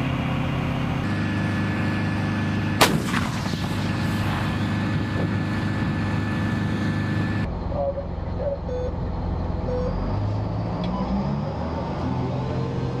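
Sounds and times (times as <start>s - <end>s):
engine hum: 0.0s - 13.0s
howitzer blast with rolling echo: 2.8s - 4.7s.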